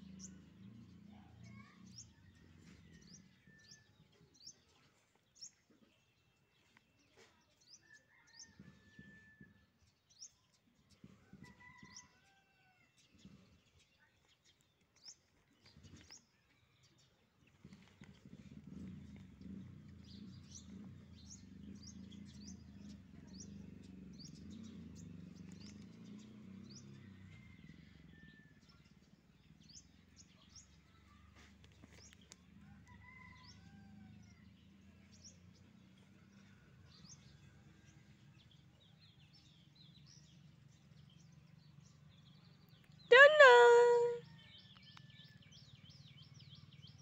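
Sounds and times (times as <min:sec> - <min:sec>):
faint birds chirping: 0:00.0 - 0:08.9.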